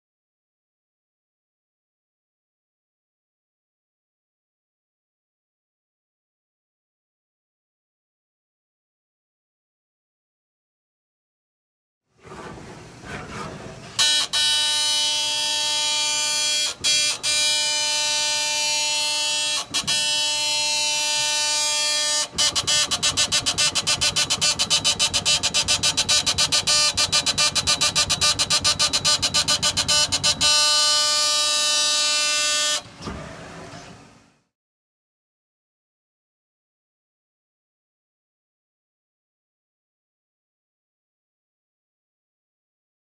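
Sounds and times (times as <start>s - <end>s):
gantry motors whining: 12.2s - 34.3s.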